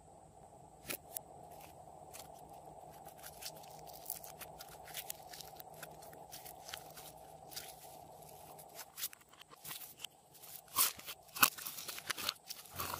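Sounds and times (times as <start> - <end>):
slime crackling and popping: 3.0 - 9.1.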